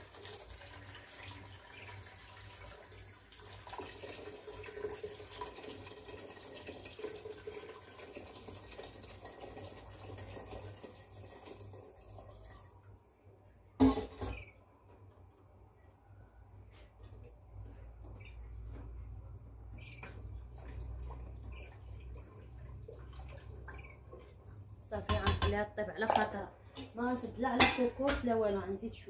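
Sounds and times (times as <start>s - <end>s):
water pouring into pot: 0.0s - 12.8s.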